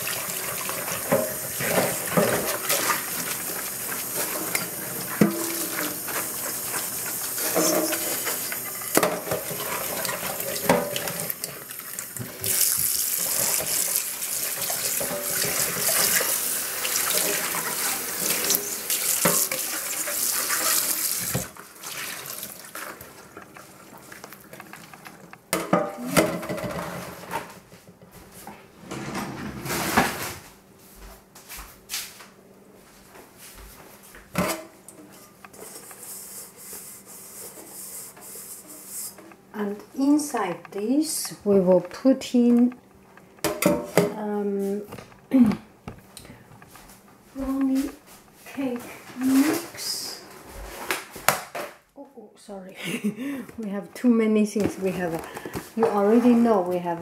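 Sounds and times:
sponge scrubbing pan: 0.0 - 23.2, 35.6 - 40.5
tap water running into saucepan: 0.0 - 25.8
pan knocking against metal sink: 4.5 - 6.3.

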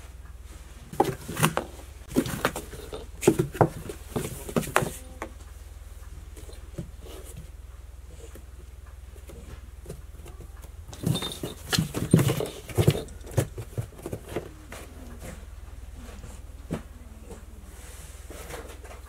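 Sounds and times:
cats scratching cardboard box: 0.9 - 5.4, 9.2 - 15.6.

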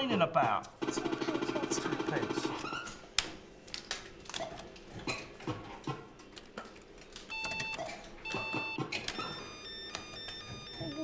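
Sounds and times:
electronic beeps: 7.3 - 11.0.

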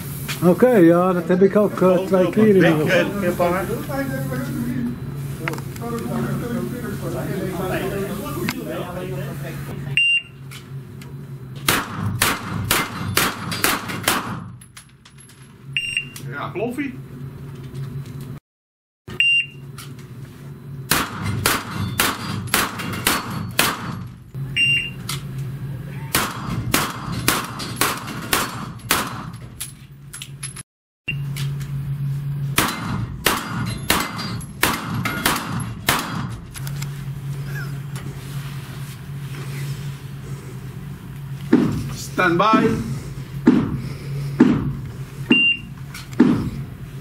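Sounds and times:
rapid pistol shots: 11.7 - 14.6, 20.9 - 24.1, 26.2 - 29.4, 32.6 - 36.4.

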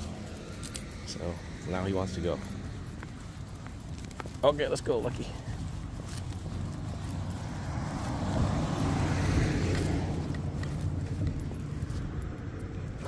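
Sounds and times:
car passing by: 0.0 - 3.5, 6.2 - 13.0
low traffic rumble: 0.0 - 13.0.

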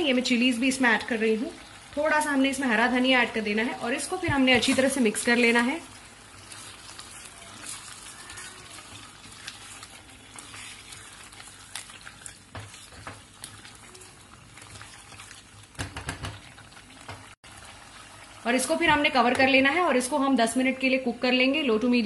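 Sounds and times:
chicken sizzling and bubbling: 0.0 - 20.3
spatula tapping and scraping pan: 9.4 - 13.6, 15.7 - 16.5.

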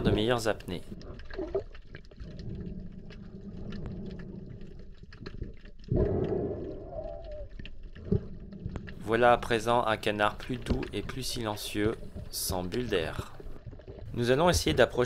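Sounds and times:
underwater breathing gurgle: 0.0 - 14.1
rush of air bubbles: 1.0 - 9.8.

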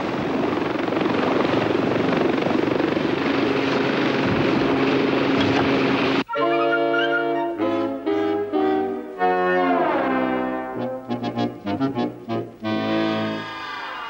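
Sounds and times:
helicopter rotor and engine noise: 0.0 - 6.2
brass music: 6.2 - 13.8.

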